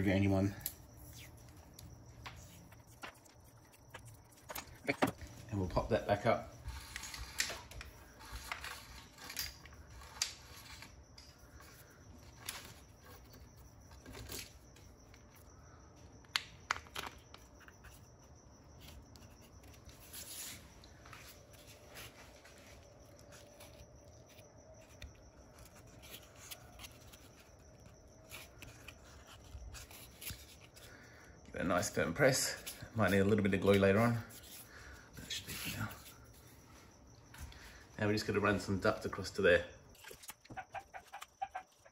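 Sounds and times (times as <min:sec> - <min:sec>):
hands rubbing cable: 0:00.9 - 0:05.2.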